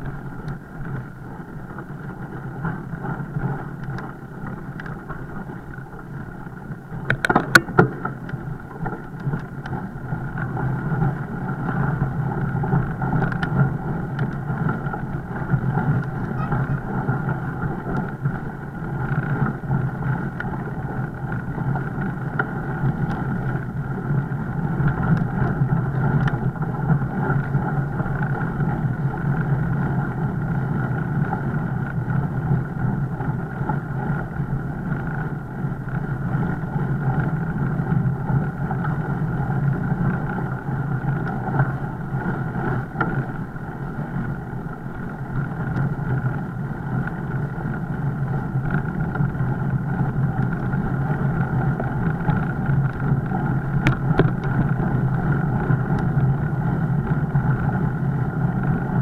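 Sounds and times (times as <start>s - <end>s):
bike riding rumble: 0.0s - 59.0s.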